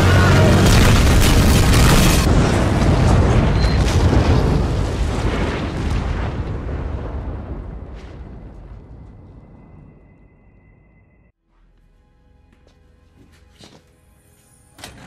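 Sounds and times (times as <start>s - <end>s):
rumbling explosion with cracks: 0.3s - 10.1s.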